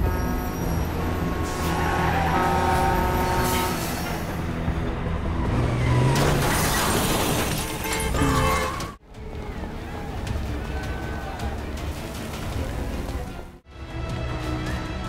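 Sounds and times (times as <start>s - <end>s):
bus engine running: 0.0s - 15.0s
street traffic: 0.0s - 15.0s
car crash impact: 6.1s - 8.7s
glass shattering: 6.2s - 8.8s.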